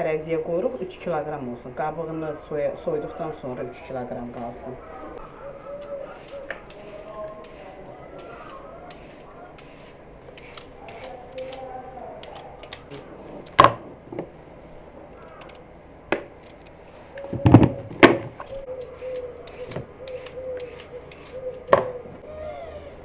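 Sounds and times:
knife clicking and tapping: 10.4s - 13.1s, 18.5s - 22.0s.

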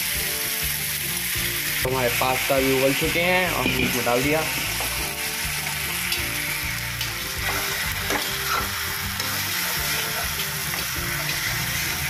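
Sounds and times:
food sizzling in a pan: 0.0s - 12.0s
metal spatula scraping pan: 3.6s - 5.8s, 7.0s - 12.0s.

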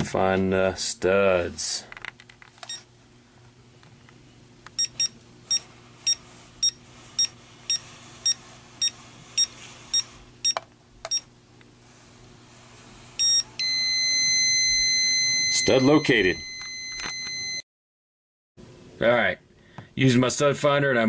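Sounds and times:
stud finder short high beeps: 13.2s - 17.6s.

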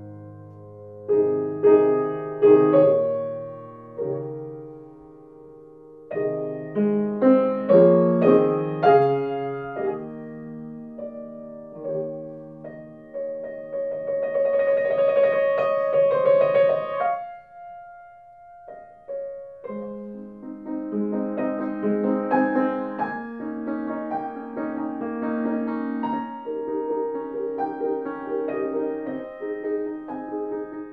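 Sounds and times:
piano music: 0.0s - 30.9s.

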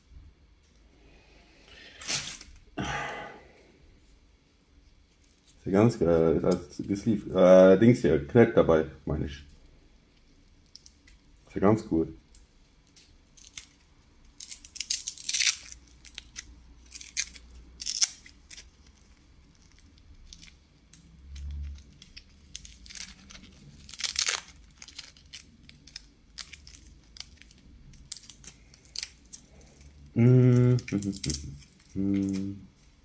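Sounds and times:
packaging rustling and crinkling: 14.5s - 30.0s.

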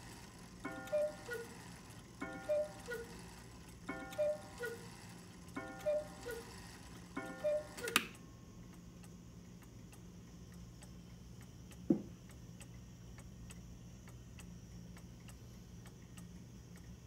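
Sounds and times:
clock ticking: 0.0s - 8.1s.

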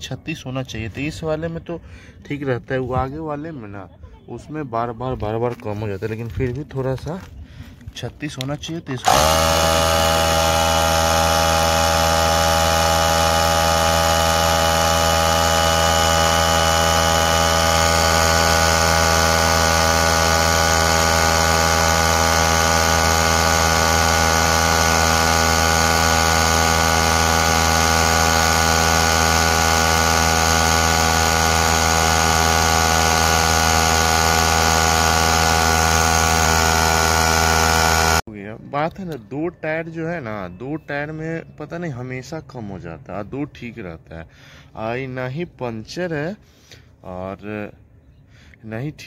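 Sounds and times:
electric compressor humming: 8.8s - 38.3s.

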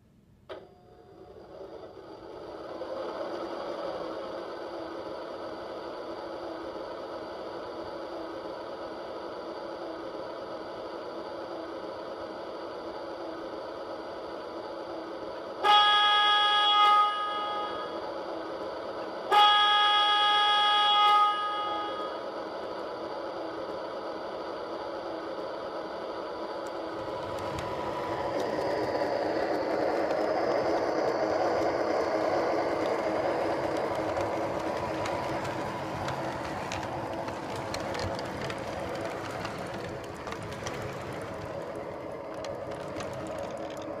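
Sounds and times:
model train rolling on rails: 0.6s - 44.0s
model train horn: 15.6s - 18.0s, 19.3s - 22.2s.

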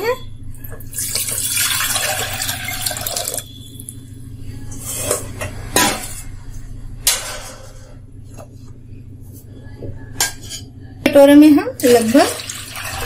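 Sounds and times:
water pouring into steel pot: 0.9s - 3.5s, 11.8s - 13.0s.

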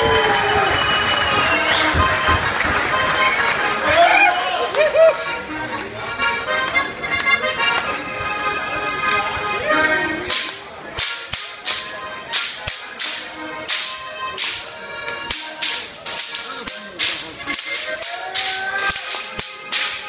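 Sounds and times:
music: 0.0s - 20.0s
whip cracking in rhythm: 10.3s - 14.7s, 15.3s - 20.0s.

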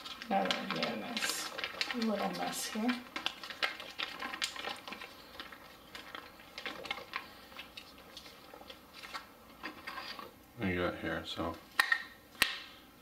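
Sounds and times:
foil pouch crinkling: 0.0s - 10.3s.

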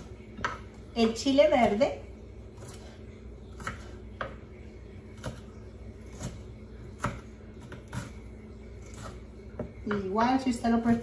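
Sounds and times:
knife chopping on wooden board: 3.5s - 4.4s, 5.2s - 5.5s, 6.1s - 8.2s.

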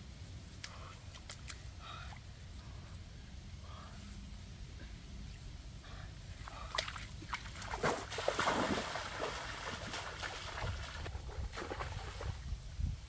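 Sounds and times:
steady low rumble: 0.0s - 7.9s
water splashing as person wades: 6.6s - 12.4s.

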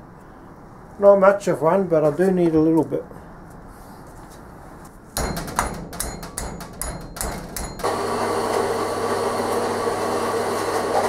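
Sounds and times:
sharp metallic knocks and clatter: 5.2s - 7.9s
bandsaw cutting: 7.4s - 11.0s.

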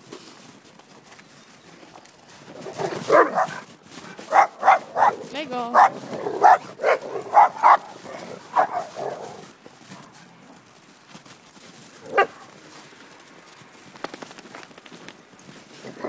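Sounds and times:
dogs barking: 2.8s - 3.6s, 4.2s - 9.4s, 12.0s - 12.5s.

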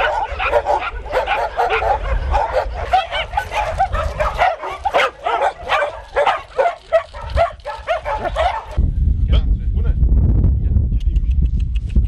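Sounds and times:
dogs barking and yipping: 0.0s - 8.8s.

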